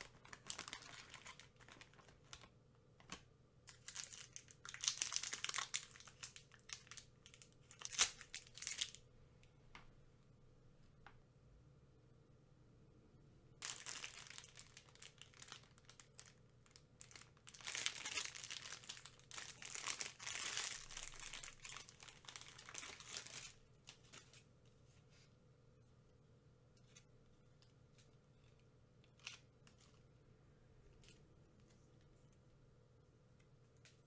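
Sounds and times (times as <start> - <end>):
plastic packaging crinkling: 0.0 - 9.0, 13.6 - 24.4.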